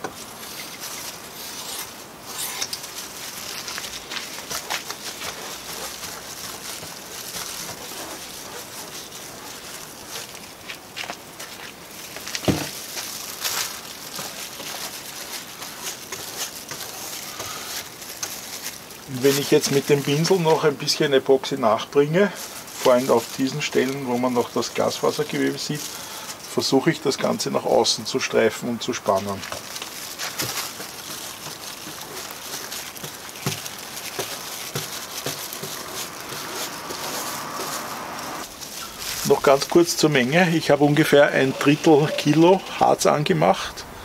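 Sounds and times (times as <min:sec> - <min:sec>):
paintbrush scratchy brushing: 0:00.3 - 0:11.8, 0:30.2 - 0:40.4.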